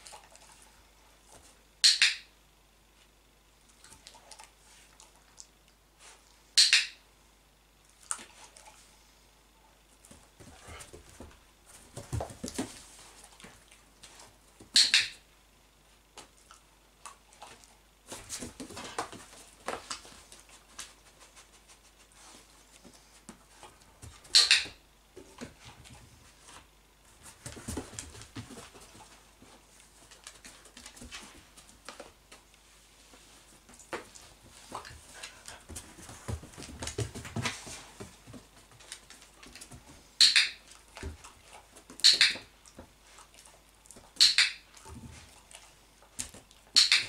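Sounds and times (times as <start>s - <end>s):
dog paws on wooden floor: 10.0s - 14.8s, 17.4s - 40.1s
dog-training clicker clicks: 42.0s - 42.4s.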